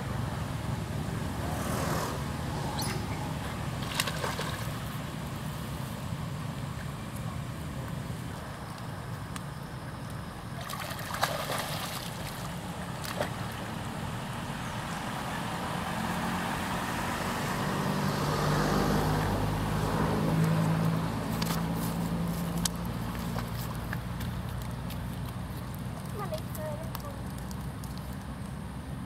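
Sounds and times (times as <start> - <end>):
vehicle engine passing: 0.0 - 6.4, 10.7 - 25.5.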